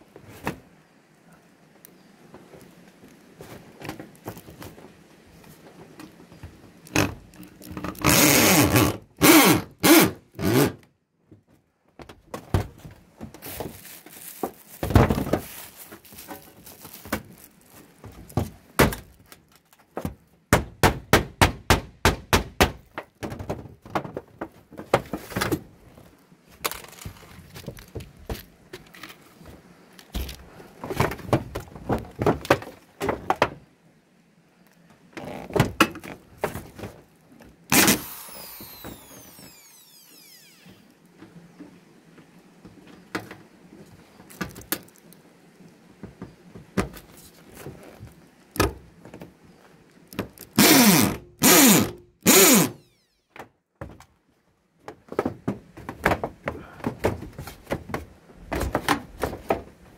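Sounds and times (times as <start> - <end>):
electric drill driving screws: 37.7 - 40.9, 50.6 - 52.9.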